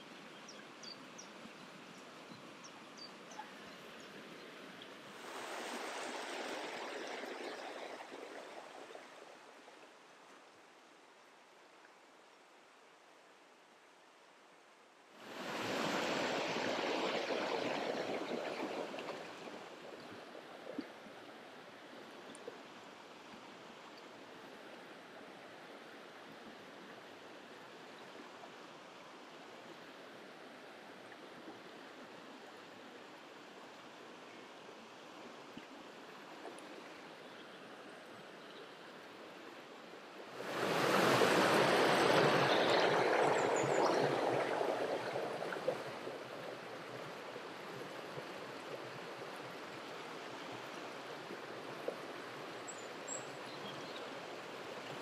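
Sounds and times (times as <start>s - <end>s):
river running over stones: 0.0s - 11.8s, 15.2s - 25.8s, 38.9s - 55.0s.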